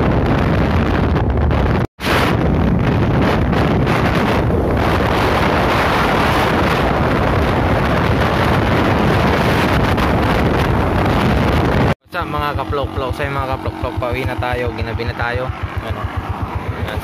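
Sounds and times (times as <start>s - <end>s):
engine and road noise: 0.0s - 17.0s
wind rush over microphone: 0.0s - 17.0s.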